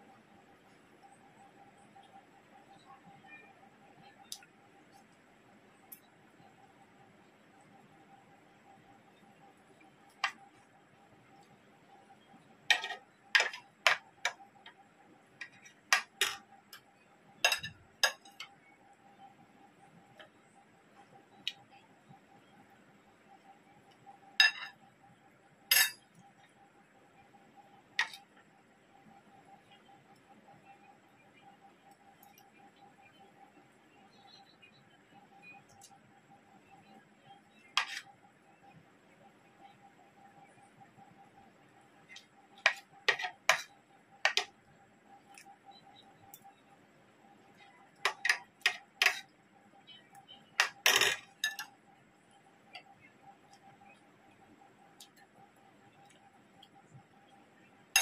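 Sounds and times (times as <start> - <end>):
cutlery clinking on a plate: 12.7 - 14.0, 17.4 - 18.4, 24.4 - 24.8, 25.7 - 26.0, 42.7 - 43.7, 48.0 - 49.2, 50.6 - 51.7
metal spoon clinking on glass bowl: 17.4 - 18.4, 24.4 - 24.8, 25.7 - 26.1, 50.6 - 51.7
spoon clinking on ceramic plate: 17.4 - 18.4, 24.4 - 24.8, 25.7 - 26.0.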